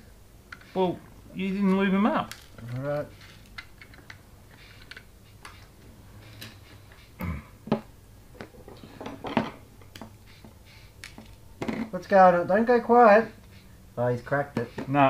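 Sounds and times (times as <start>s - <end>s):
small parts and tools clicking: 1.6s - 7.1s.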